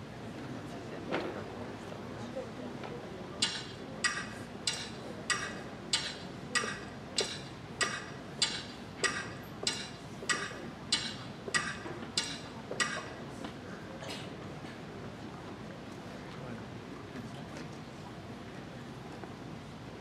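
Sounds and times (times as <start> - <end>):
clock ticking: 3.4 - 13.0.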